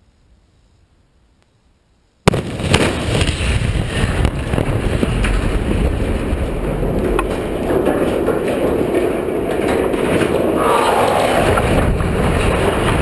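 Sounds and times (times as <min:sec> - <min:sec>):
sharp explosive cracks: 0:02.2 - 0:06.8
rumble: 0:02.4 - 0:13.0.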